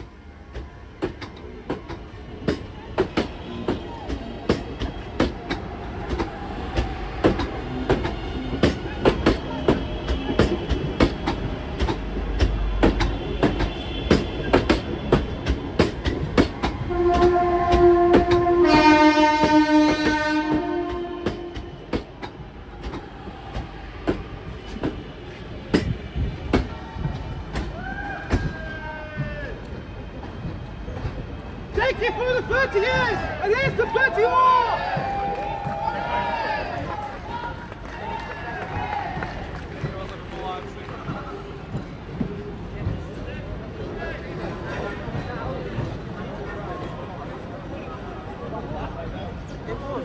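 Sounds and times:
train wheels clicking over rail joints: 0.0s - 37.7s, 38.4s - 47.4s
two-tone train horn: 16.8s - 22.0s.

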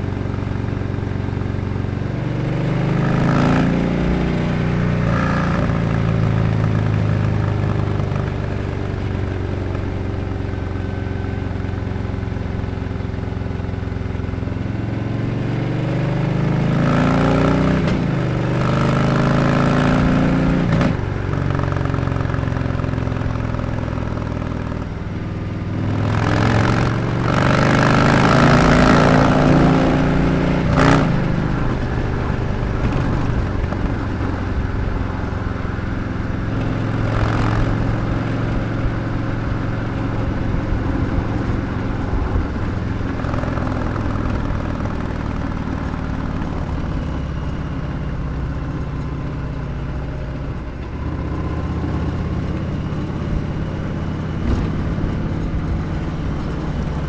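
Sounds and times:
motorcycle engine accelerating: 0.0s - 57.0s.

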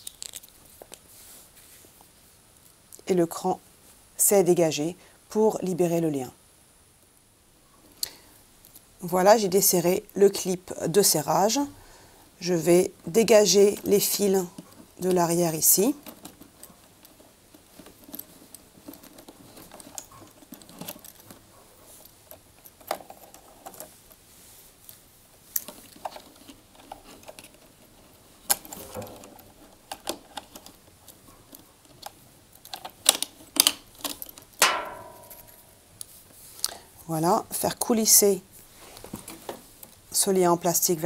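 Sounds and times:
wires and plastic connectors rattling: 0.0s - 1.1s, 12.6s - 24.2s, 24.9s - 35.6s
scrape: 1.1s - 2.0s.

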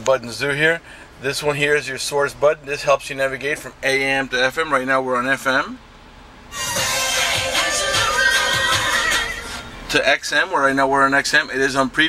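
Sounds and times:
music from car stereo: 6.4s - 11.9s.

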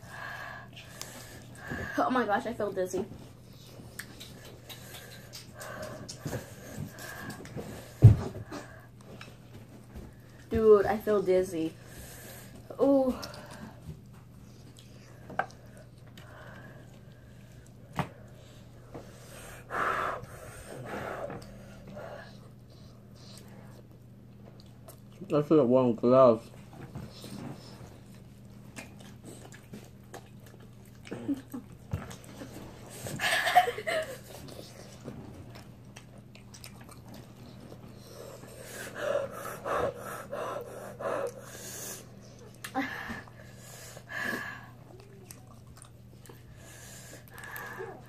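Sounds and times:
low steady hum: 0.0s - 48.0s
person chewing: 3.5s - 7.7s, 28.0s - 32.7s, 34.4s - 38.6s, 44.8s - 46.6s.

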